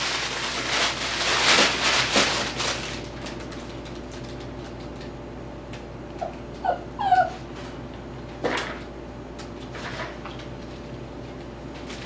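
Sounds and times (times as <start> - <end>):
puppy whimpering: 6.2 - 7.6.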